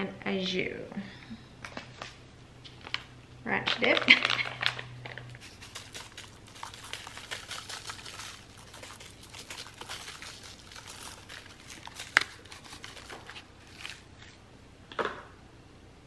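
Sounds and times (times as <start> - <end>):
paper packet shaking: 3.8 - 14.1
powder sprinkling on meat: 3.8 - 14.1.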